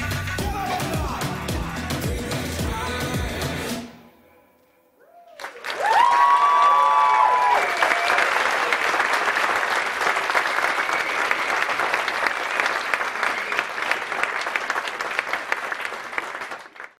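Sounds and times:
audience applauding: 0:05.2 - 0:16.9.

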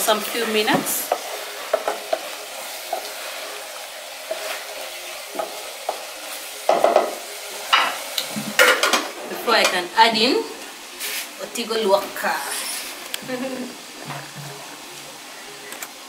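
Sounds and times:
wooden spoon stirring in saucepan: 0:00.0 - 0:09.7
simmering pot hiss: 0:00.0 - 0:16.0.

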